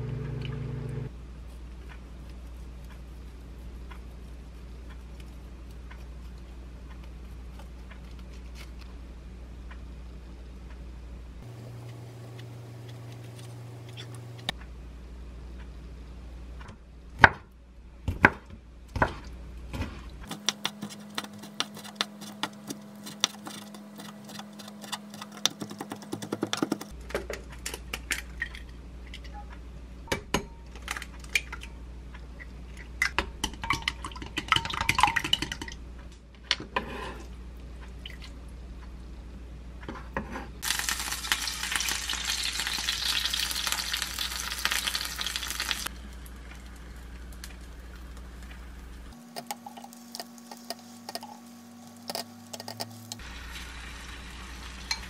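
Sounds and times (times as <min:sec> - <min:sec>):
egg beaten in glass bowl: 0:20.3 - 0:26.9, 0:33.4 - 0:35.7
egg sizzling in hot pan: 0:40.6 - 0:55.0.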